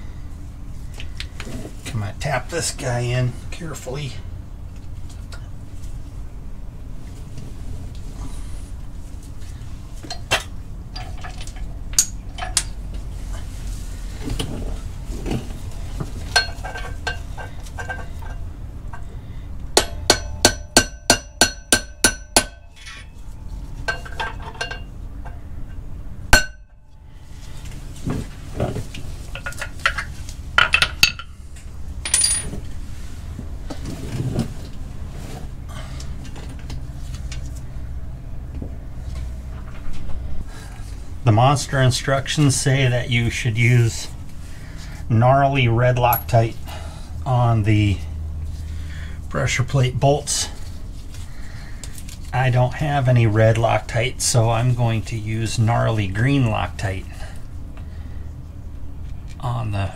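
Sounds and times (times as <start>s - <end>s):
hammer tapping on metal: 19.8s - 22.7s
tool clinks: 32.0s - 32.6s.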